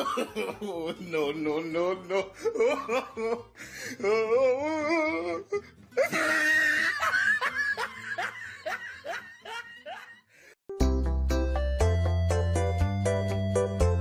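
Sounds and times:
person laughing hard: 0.0 - 10.6.

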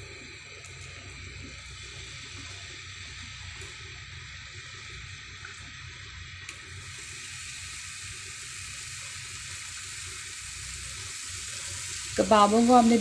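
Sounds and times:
kebabs sizzling in hot oil: 0.0 - 13.0.

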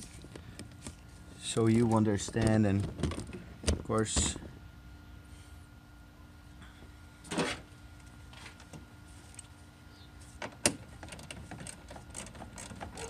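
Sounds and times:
small clicks and rattles: 11.0 - 13.0.

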